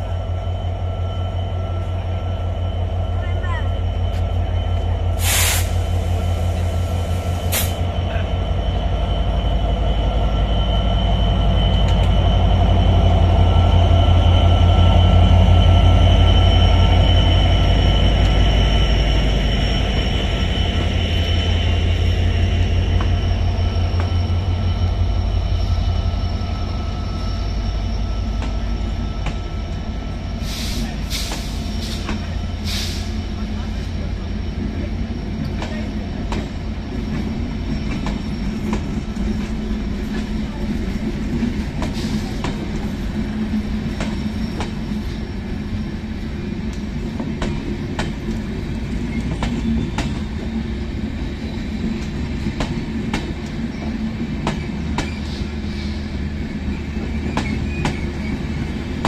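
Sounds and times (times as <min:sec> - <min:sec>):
diesel locomotive engine throb: 0:00.0 - 0:59.0
train coaches rolling by: 0:00.0 - 0:59.0
short air hiss: 0:05.2 - 0:07.8.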